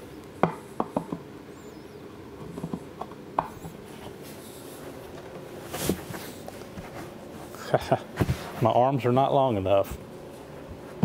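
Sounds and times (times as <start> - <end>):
cardboard tube scraping rustle: 3.9 - 7.6.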